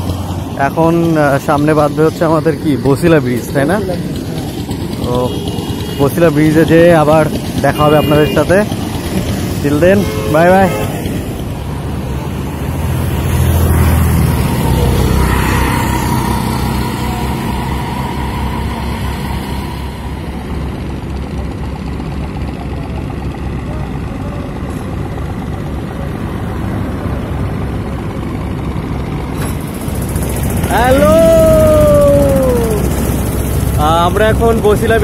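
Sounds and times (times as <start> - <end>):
heavy vehicle engine: 0.0 - 35.0
steady traffic din: 0.0 - 35.0.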